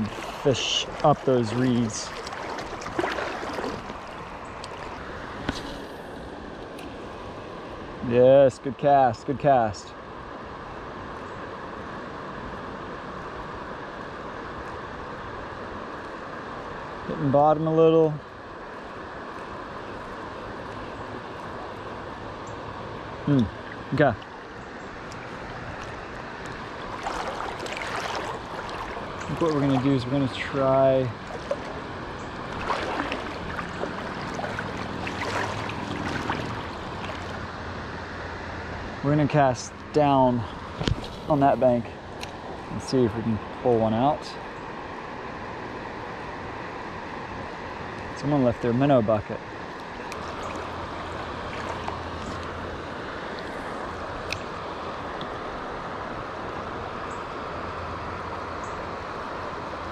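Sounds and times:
light water splashes: 0:00.0 - 0:07.9, 0:18.6 - 0:38.3, 0:48.0 - 0:57.4
creek water flowing: 0:00.0 - 0:59.9.

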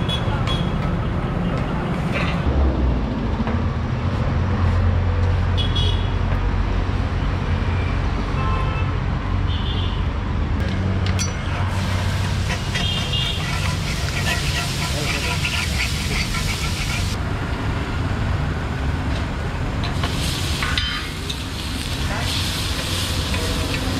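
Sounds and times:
traffic engine rumble: 0:00.0 - 0:08.4, 0:09.0 - 0:23.9
water hissing on hot griddle: 0:11.6 - 0:17.2, 0:19.9 - 0:23.9.

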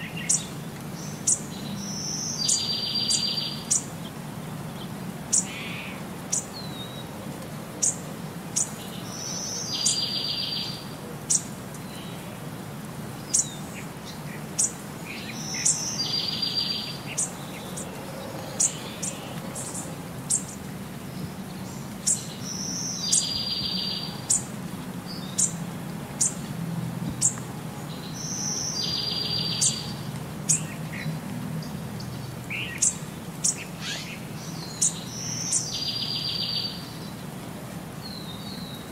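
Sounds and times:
birds chirping with buzzy trill: 0:00.0 - 0:07.1, 0:13.2 - 0:25.6, 0:27.1 - 0:37.2.

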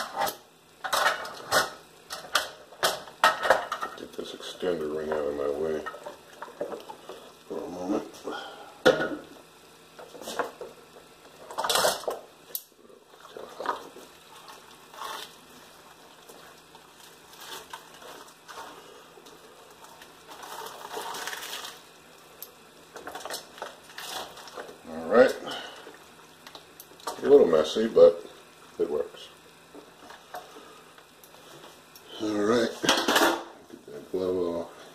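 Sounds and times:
scraping or rustling: 0:13.4 - 0:19.0, 0:19.8 - 0:21.8.

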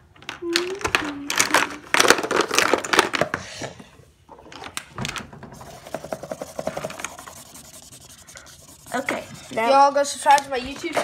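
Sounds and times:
objects clicking and knocking: 0:00.1 - 0:03.5
faint scratching: 0:05.6 - 0:10.9.

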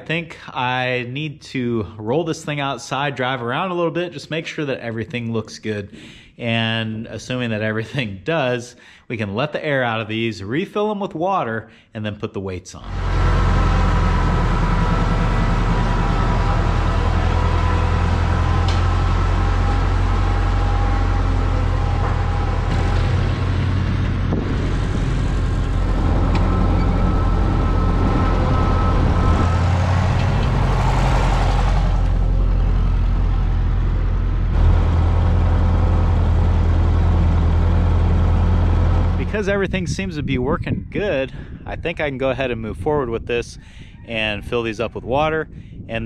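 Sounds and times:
tractor engine running: 0:12.9 - 0:39.7.

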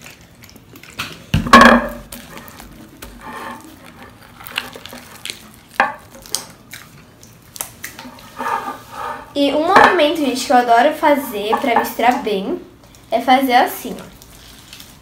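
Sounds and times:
slime squelching: 0:00.0 - 0:15.0
loud knock: 0:01.4 - 0:02.0.

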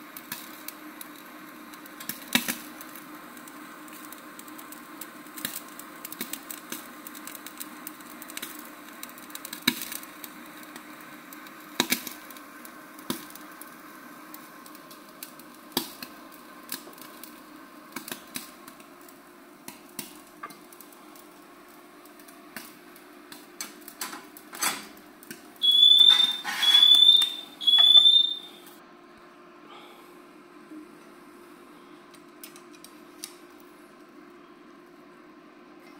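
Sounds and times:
meat crackling and popping: 0:00.0 - 0:28.7, 0:32.1 - 0:34.0
grill humming: 0:00.0 - 0:35.9
loud electronic beeps: 0:25.6 - 0:28.6.

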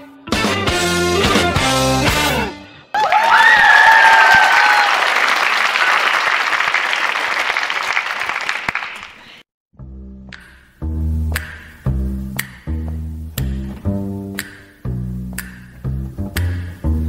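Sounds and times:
long high cheer: 0:02.9 - 0:08.8
audience applauding: 0:03.0 - 0:09.4.

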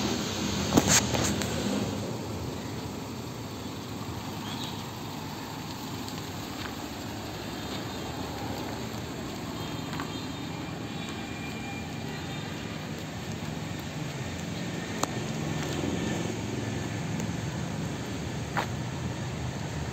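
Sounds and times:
car engine rumble: 0:00.0 - 0:19.9
tyre noise on dirt: 0:06.2 - 0:19.4.

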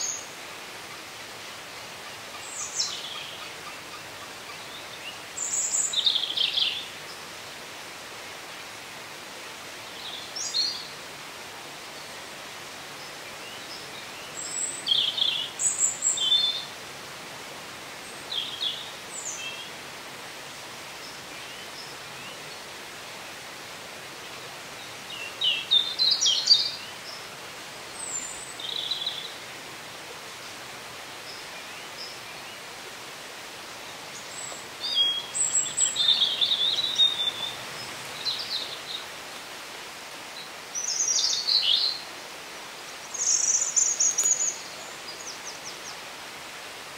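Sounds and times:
songbirds singing: 0:00.0 - 0:00.4, 0:01.7 - 0:07.4, 0:12.9 - 0:16.8, 0:17.9 - 0:19.8, 0:24.3 - 0:29.7, 0:33.6 - 0:46.4
steady background hiss: 0:00.0 - 0:46.9.

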